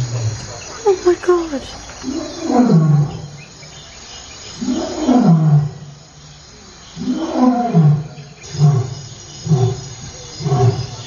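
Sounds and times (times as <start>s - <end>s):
lion roaring: 2.0s - 3.4s, 4.5s - 6.0s, 7.0s - 11.0s.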